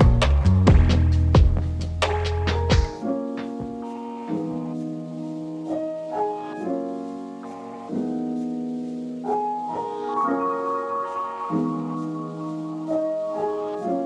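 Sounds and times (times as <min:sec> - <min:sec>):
slow piano chords: 0:00.0 - 0:14.0.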